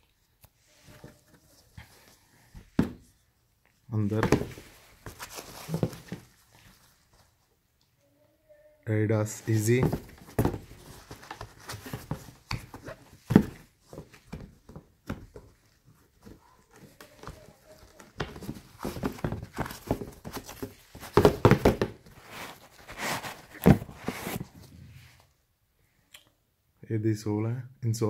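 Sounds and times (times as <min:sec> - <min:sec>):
sneaker knocking against cardboard box: 0:02.8 - 0:03.0, 0:04.2 - 0:04.7, 0:09.7 - 0:15.4, 0:18.1 - 0:22.1.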